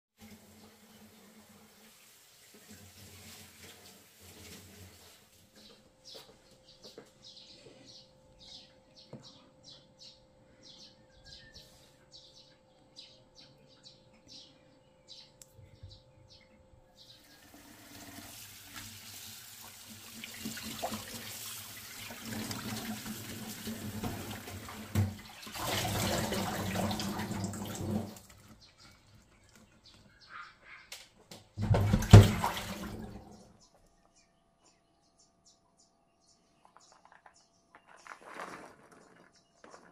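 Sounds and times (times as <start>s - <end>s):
tap water running into bowl: 17.3s - 28.5s.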